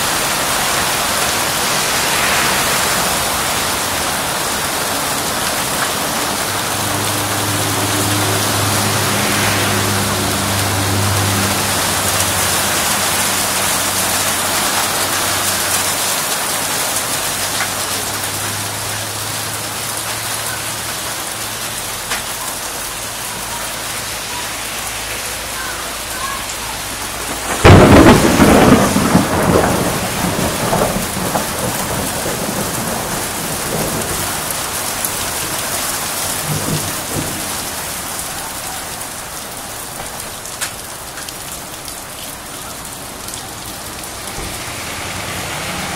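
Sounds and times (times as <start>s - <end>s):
hail and rain pelting: 0.0s - 45.9s
thunderclap rumbling: 0.1s - 17.0s, 26.8s - 38.4s.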